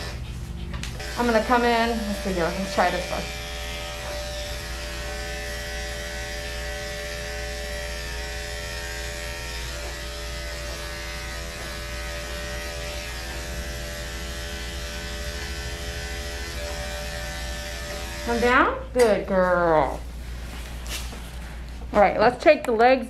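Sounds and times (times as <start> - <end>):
electric clipper buzzing: 0.8 - 18.8.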